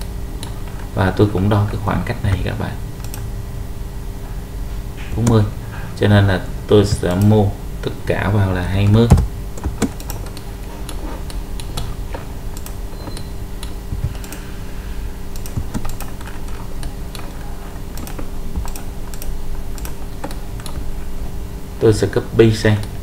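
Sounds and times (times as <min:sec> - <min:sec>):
low electrical hum: 0:00.0 - 0:23.0
keyboard and mouse clicks: 0:03.0 - 0:03.3, 0:08.8 - 0:11.9, 0:15.3 - 0:20.9.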